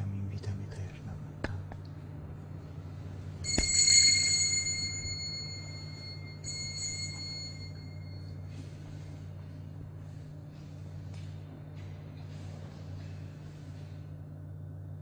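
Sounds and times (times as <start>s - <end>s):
small bell ringing: 3.4s - 8.5s.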